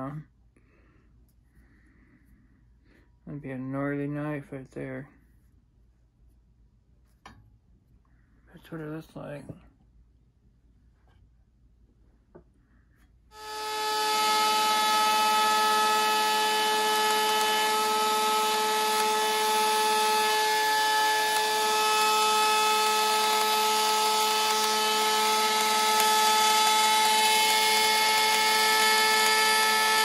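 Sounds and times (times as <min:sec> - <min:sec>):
router motor whining: 0:13.3 - 0:30.0.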